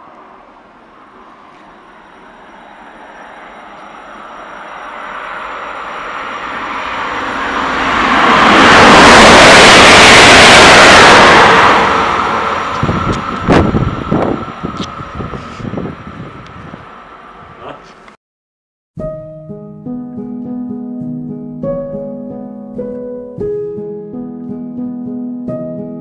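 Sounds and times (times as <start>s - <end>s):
electric train passing at speed: 0.0s - 18.1s.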